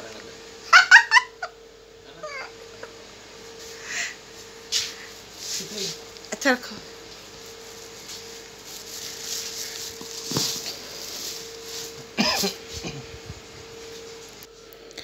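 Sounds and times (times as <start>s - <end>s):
steady hum: 0.0s - 15.0s
plastic bag and greens rustling: 5.2s - 14.4s
short cough: 12.2s - 13.1s.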